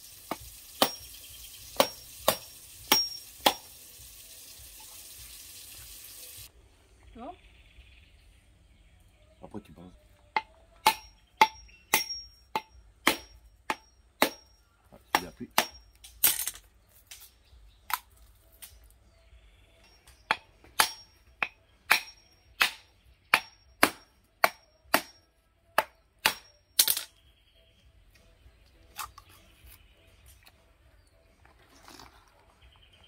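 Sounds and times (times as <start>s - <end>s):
machete striking coconut: 0.3s - 1.1s, 1.7s - 3.7s, 10.4s - 14.5s, 15.1s - 16.5s, 20.3s - 25.2s, 25.8s - 27.1s.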